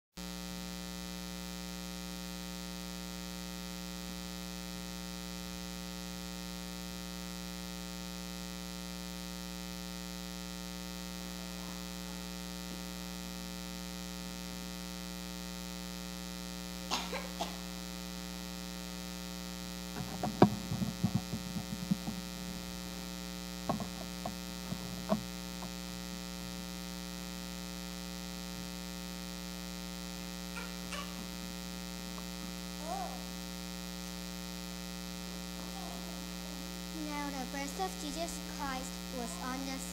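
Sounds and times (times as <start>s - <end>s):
electrical mains hum: 0.2s - 39.9s
knocks and rattles: 20.0s - 22.3s, 23.7s - 25.7s.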